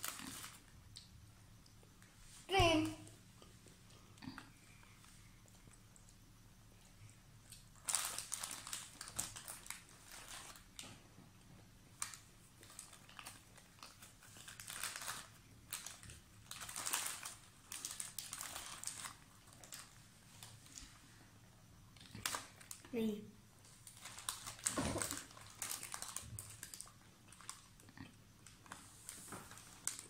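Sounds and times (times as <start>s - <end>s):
plastic wrappers crinkling: 0.0s - 0.7s, 7.4s - 11.0s, 12.0s - 21.0s, 22.0s - 22.9s, 23.6s - 30.0s.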